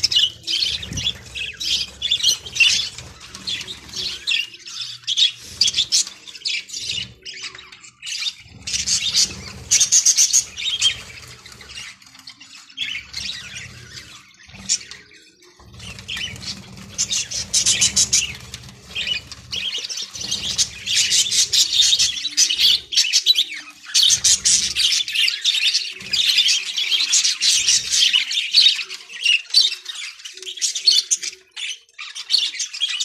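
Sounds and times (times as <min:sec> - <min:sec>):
budgerigars chattering and squawking: 0:00.0 - 0:33.0.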